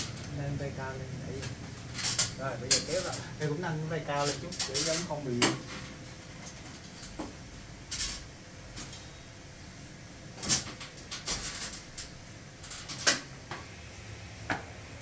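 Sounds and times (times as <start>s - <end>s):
metal tubes clicking and knocking: 1.4s - 3.4s, 4.1s - 5.8s.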